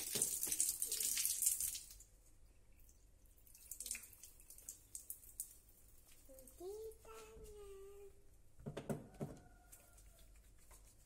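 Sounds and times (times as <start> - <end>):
tap water splashing on tiles: 0.0 - 2.1, 3.4 - 6.3.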